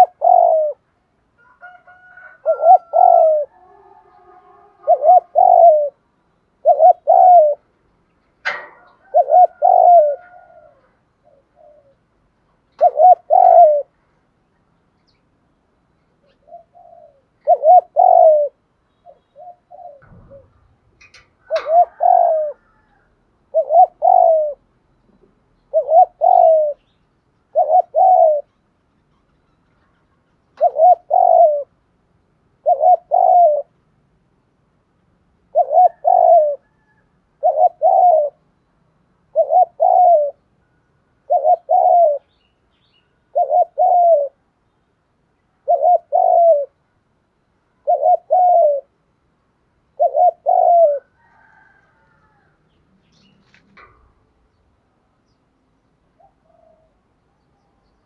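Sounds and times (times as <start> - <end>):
dove cooing: 0.0 - 6.0, 6.6 - 7.7, 8.4 - 12.1, 12.7 - 14.0, 16.2 - 26.9, 27.5 - 31.8, 32.6 - 33.8, 35.5 - 38.5, 39.2 - 42.3, 43.3 - 44.4, 45.6 - 46.8, 47.8 - 49.0, 49.9 - 52.6, 56.2 - 57.2.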